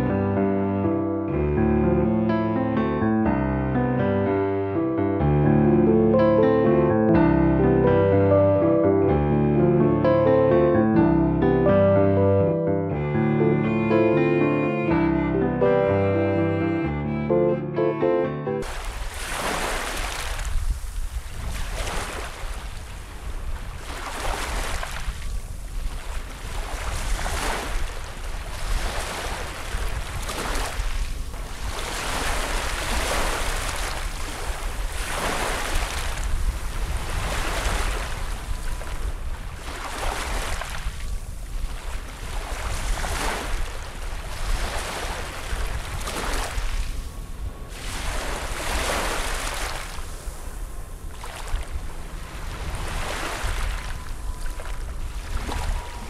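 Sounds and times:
waves washing on stony beach: 0:18.6 - 0:56.0
wind rumbling on microphone: 0:18.6 - 0:56.0.

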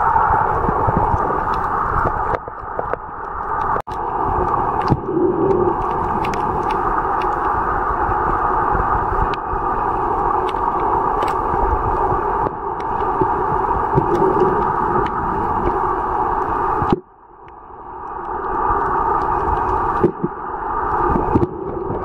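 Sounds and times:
muffled underwater rushing: 0:00.0 - 0:22.0
faint sharp underwater clicks: 0:00.9 - 0:07.6, 0:10.3 - 0:15.8.

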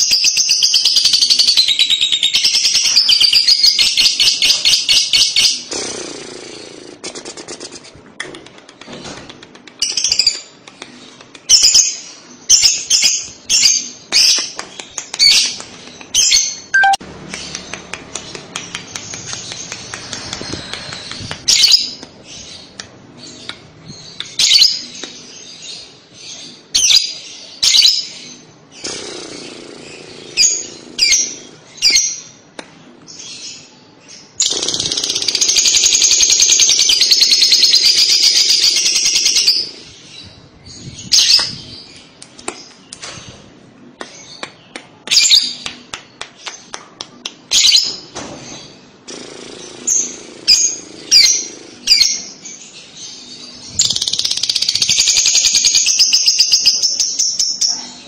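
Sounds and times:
lovebird chirping: 0:15.2 - 0:32.2
bird chattering trill: 0:16.2 - 0:17.6.

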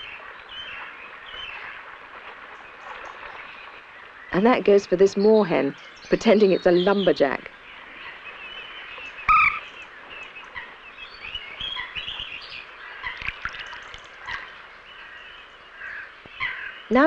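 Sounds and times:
birds chirping and twittering: 0:00.0 - 0:17.0
loud bird call: 0:08.1 - 0:13.3.

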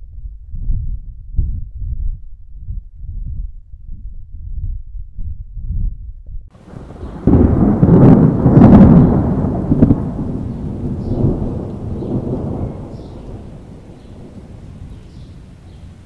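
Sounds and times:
rolling thunder rumble: 0:06.6 - 0:16.0
thunderclap: 0:06.6 - 0:16.0.

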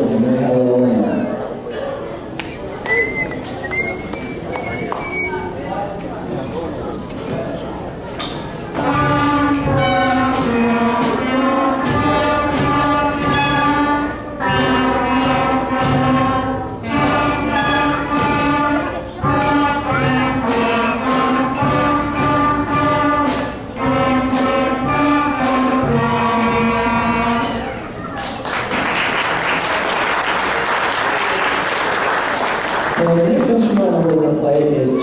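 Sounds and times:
wind band playing slow piece: 0:08.7 - 0:27.9.

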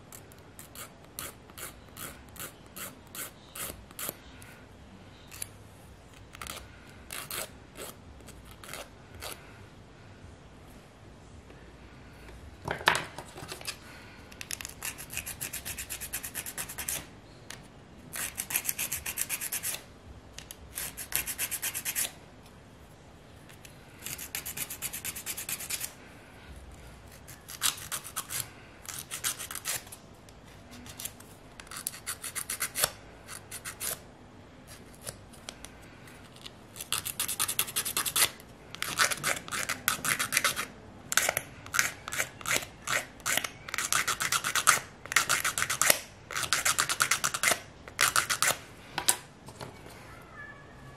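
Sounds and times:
nail file rasping: 0:00.1 - 0:04.2, 0:06.3 - 0:09.4, 0:14.4 - 0:17.1, 0:18.1 - 0:19.8, 0:20.7 - 0:22.2, 0:24.0 - 0:26.0, 0:27.2 - 0:30.0, 0:30.9 - 0:34.0, 0:36.4 - 0:48.6.

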